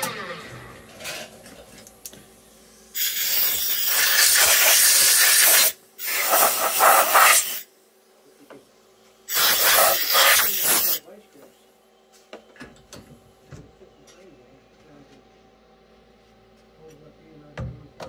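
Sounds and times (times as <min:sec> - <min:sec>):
compressed air blow gun hissing: 0:02.9 - 0:07.7, 0:09.3 - 0:11.0.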